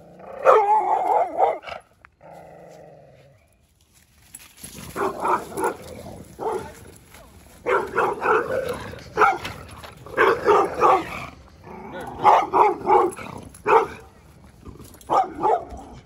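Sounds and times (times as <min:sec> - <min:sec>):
dogs barking rapidly: 0:00.3 - 0:01.9, 0:04.9 - 0:06.8, 0:07.6 - 0:14.1, 0:15.0 - 0:16.0.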